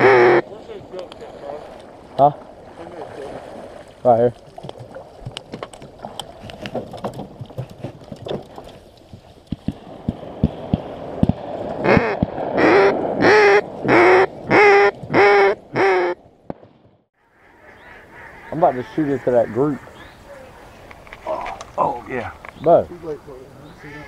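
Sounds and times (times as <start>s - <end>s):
duck call quacks: 0.0s - 0.4s, 11.8s - 16.2s.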